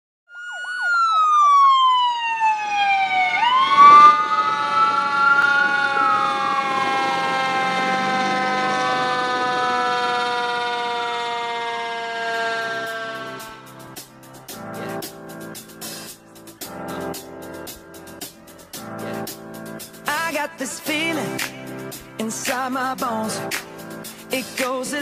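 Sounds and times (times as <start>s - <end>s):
siren wailing: 0.3s - 13.8s.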